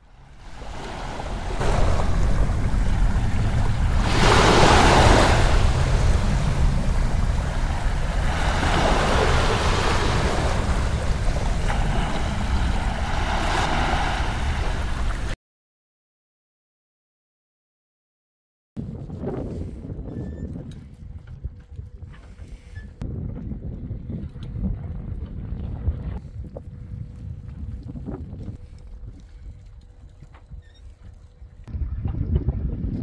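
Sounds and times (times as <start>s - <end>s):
waves rushing along hull: 0.0s - 15.4s
wind rumbling on microphone: 0.0s - 15.4s, 18.8s - 33.0s.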